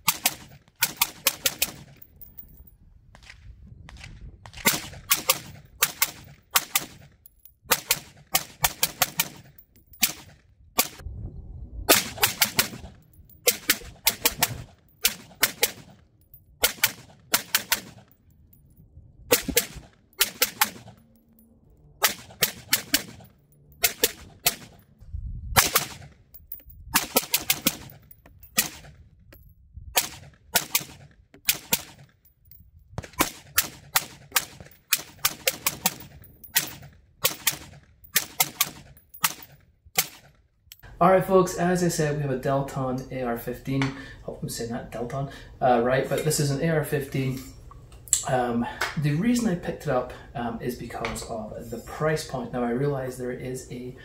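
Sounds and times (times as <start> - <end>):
rifle shots: 0.0 - 2.0, 4.0 - 7.1, 7.7 - 11.0, 11.9 - 16.0, 16.6 - 18.2, 19.3 - 21.0, 22.0 - 24.9, 25.6 - 26.2, 27.0 - 29.0, 30.0 - 32.1, 33.0 - 40.3.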